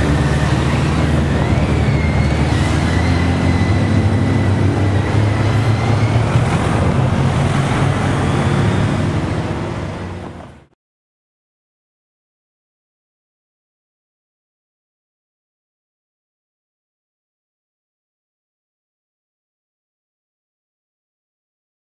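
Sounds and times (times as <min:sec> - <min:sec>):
high-pitched squeal: 0:00.0 - 0:10.2.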